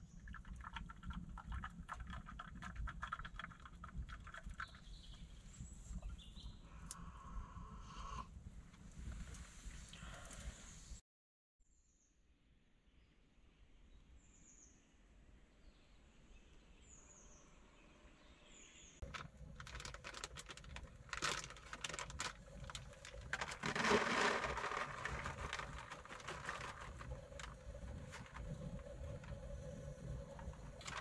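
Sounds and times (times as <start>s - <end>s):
bird chirping: 4.6s - 6.7s
plastic packet crinkling: 19.0s - 28.5s, 30.8s - 31.0s.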